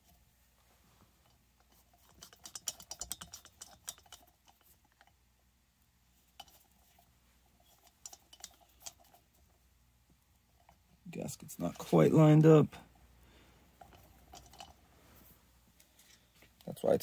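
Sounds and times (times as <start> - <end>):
metallic clicks of hand tools: 2.1 - 5.1.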